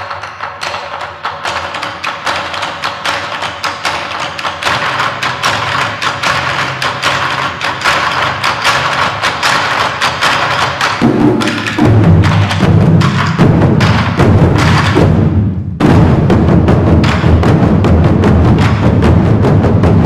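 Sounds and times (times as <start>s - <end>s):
drums played with sticks: 0.0s - 20.0s
deep drum strokes: 11.0s - 20.0s.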